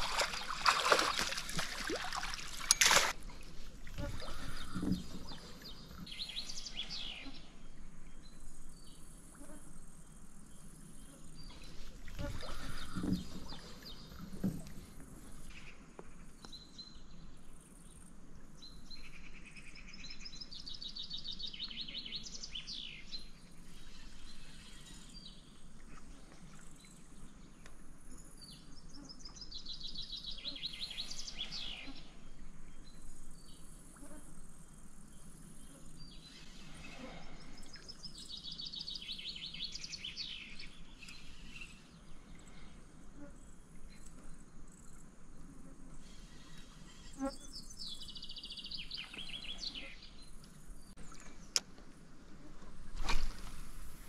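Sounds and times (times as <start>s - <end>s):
songbird singing: 0.0s - 3.2s, 3.8s - 14.7s, 15.4s - 25.8s, 26.5s - 45.1s, 46.0s - 54.0s.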